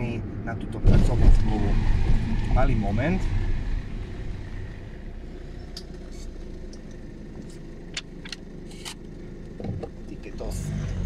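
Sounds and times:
car engine low rumble: 0:00.0 - 0:11.0.

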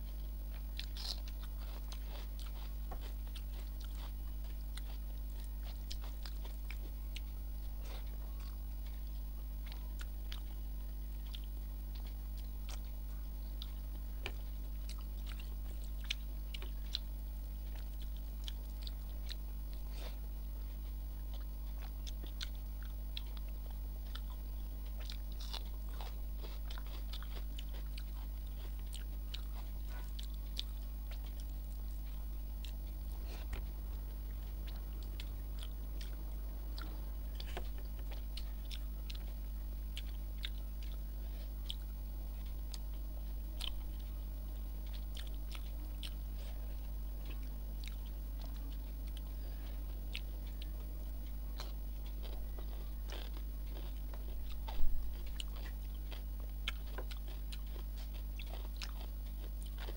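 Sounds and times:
steady low hum: 0:00.0 - 0:59.9
chewing and wet mouth clicks: 0:11.2 - 0:13.0, 0:21.4 - 0:41.0.

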